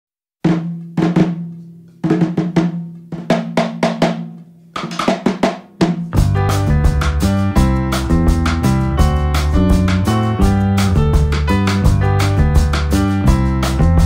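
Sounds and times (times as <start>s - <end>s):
drum hits: 0.5s - 14.0s.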